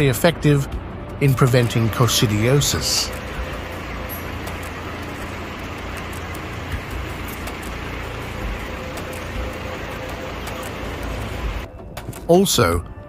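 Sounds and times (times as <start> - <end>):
low rumble and hiss: 0.0 - 11.7.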